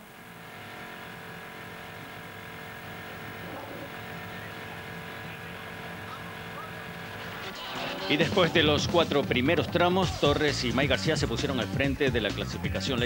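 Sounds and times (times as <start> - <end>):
rally car engine idling: 0.0 - 13.0
faint voice: 3.4 - 7.9.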